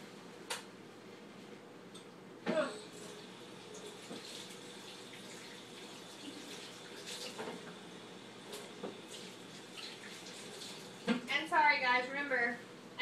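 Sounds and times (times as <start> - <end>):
tap water running: 2.9 - 11.6.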